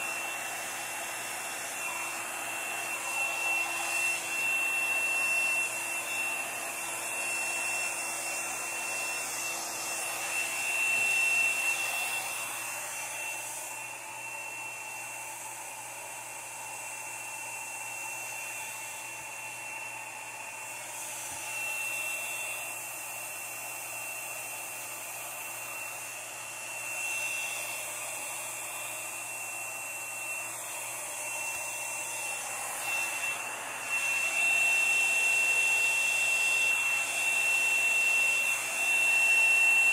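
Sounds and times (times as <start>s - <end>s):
hair dryer blowing: 0.0s - 39.9s.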